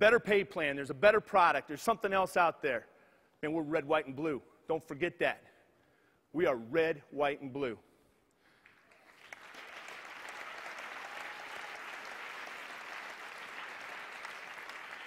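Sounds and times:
audience applauding: 0:08.6 - 0:15.0.

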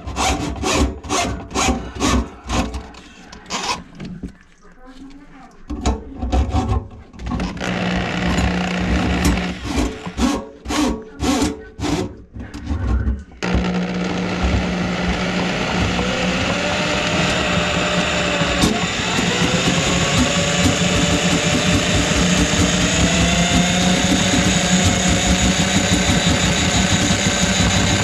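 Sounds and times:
drain auger motor running: 0:07.5 - 0:10.3, 0:13.4 - 0:28.0.

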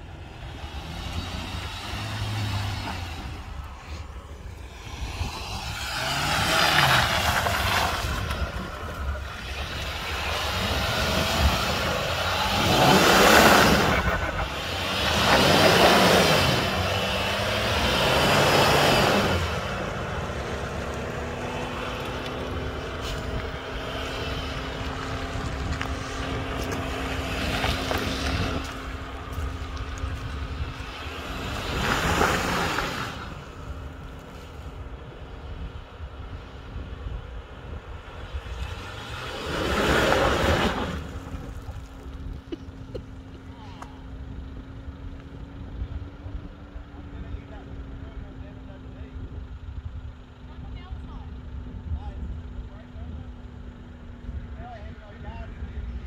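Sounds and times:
suv engine revving in mud: 0:00.0 - 0:35.7, 0:38.0 - 0:44.7.

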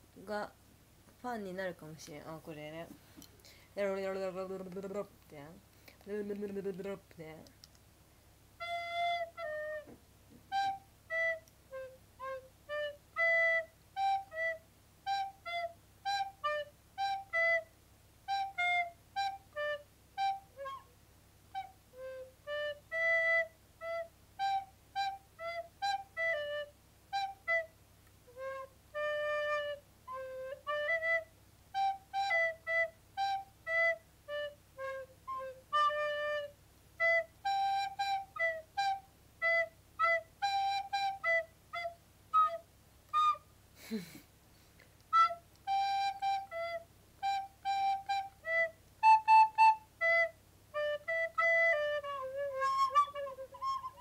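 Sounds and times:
recorder playing melody: 0:08.6 - 0:20.9, 0:21.5 - 0:44.2, 0:45.0 - 0:54.0.

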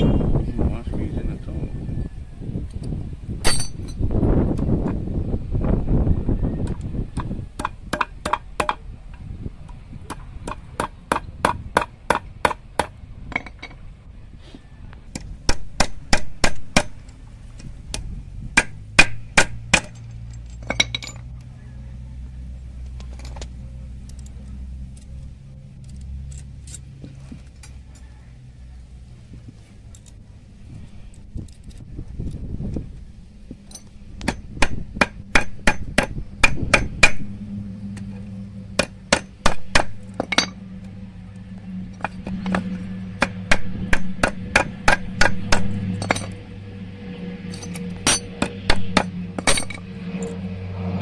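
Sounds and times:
hammer tapping metal: 0:42.0 - 0:46.4.

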